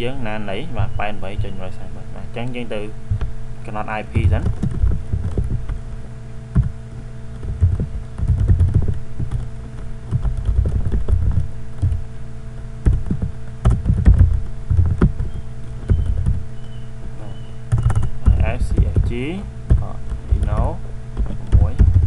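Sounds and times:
low microphone rumble: 0:00.0 - 0:22.0
steady electrical hum: 0:00.0 - 0:22.0
keyboard typing clicks: 0:07.4 - 0:12.0, 0:12.8 - 0:16.8, 0:17.7 - 0:22.0.

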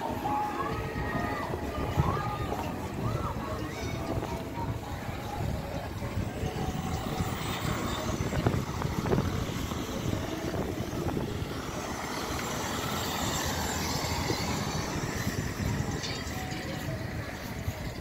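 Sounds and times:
wind rumbling on microphone: 0:00.0 - 0:18.0
car driving past: 0:06.9 - 0:16.0.

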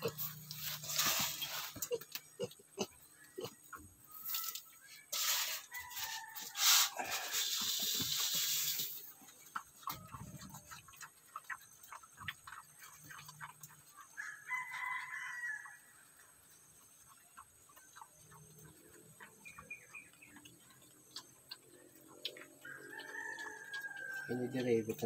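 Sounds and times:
piglets chewing pellet feed: 0:00.0 - 0:25.0
rooster crowing: 0:14.2 - 0:15.8, 0:22.6 - 0:24.7.

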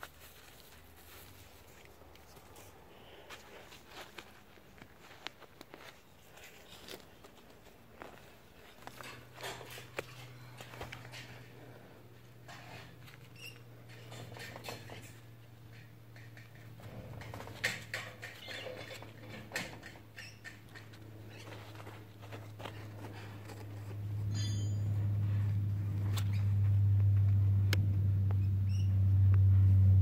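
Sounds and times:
dry soil scratching and crackling: 0:00.0 - 0:14.2, 0:20.8 - 0:26.7
low steady hum: 0:00.0 - 0:30.0.

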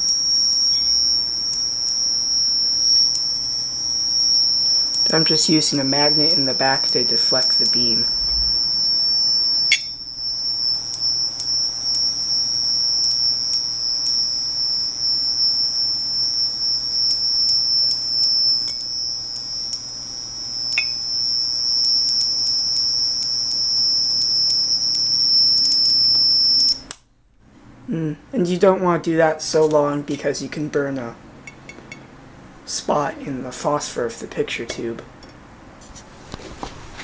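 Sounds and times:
high-pitched electrical squeal: 0:00.0 - 0:26.9.

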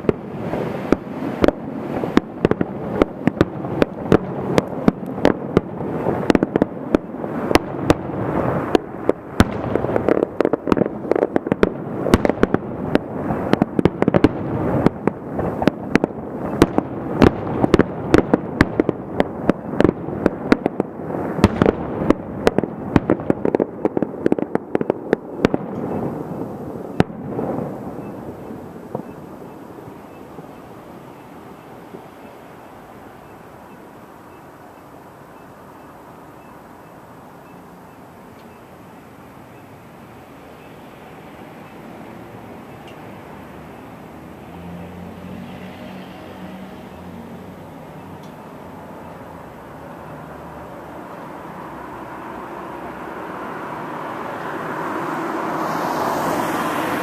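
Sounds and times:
fireworks bursting with sharp bangs: 0:00.0 - 0:44.6
continuous fireworks din: 0:00.0 - 0:57.0.

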